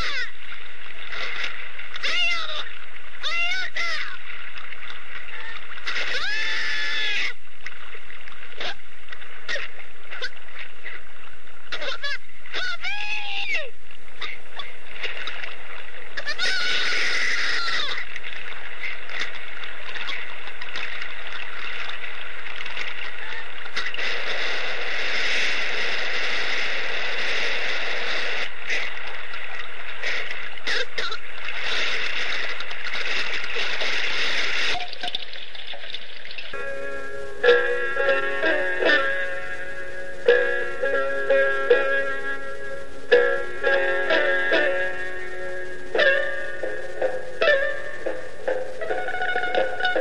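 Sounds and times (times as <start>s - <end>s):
water splashes: 0.0s - 50.0s
wailing cries: 5.4s - 7.4s, 16.2s - 18.0s
steady wash of water noise: 18.0s - 50.0s.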